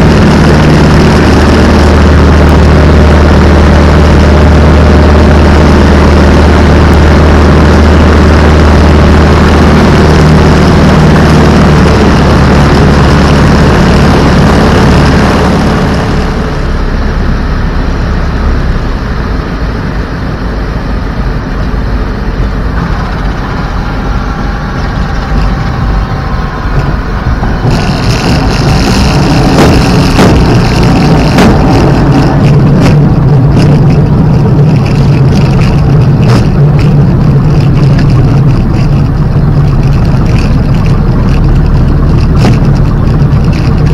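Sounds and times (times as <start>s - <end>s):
propeller aircraft engine drone: 0.0s - 43.9s.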